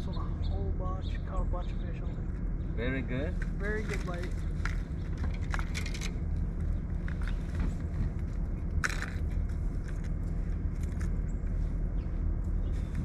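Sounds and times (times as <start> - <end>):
steady low rumble: 0.0 - 13.0
fishing lures clicking and rattling: 3.9 - 6.2.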